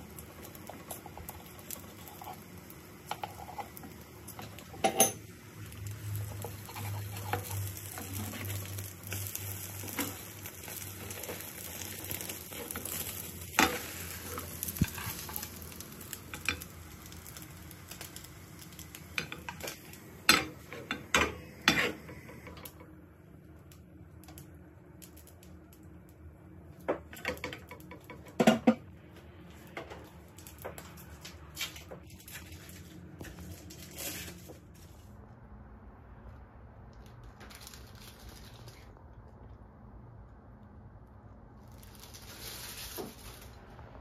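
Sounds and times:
oil sizzling: 0.0s - 29.0s, 41.6s - 44.0s
utensils clinking against pans: 3.1s - 5.3s, 19.2s - 22.6s.

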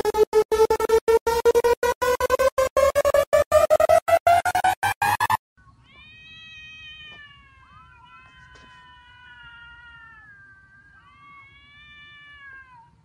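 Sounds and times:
cat yowling: 5.8s - 13.0s.

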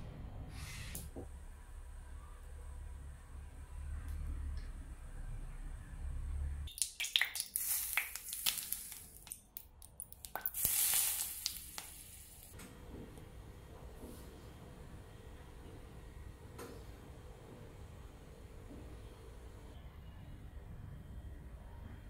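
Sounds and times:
hot oil sizzling and crackling: 6.8s - 9.4s, 10.0s - 12.6s.

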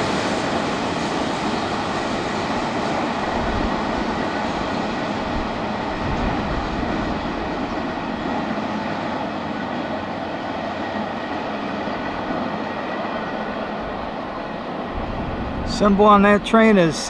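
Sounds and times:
train wheels rumbling and rattling: 0.0s - 17.0s.

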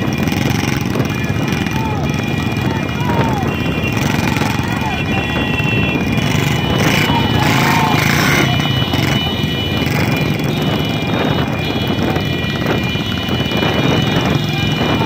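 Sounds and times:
motorcycle engines droning: 0.0s - 15.0s
men shouting: 1.0s - 9.3s.

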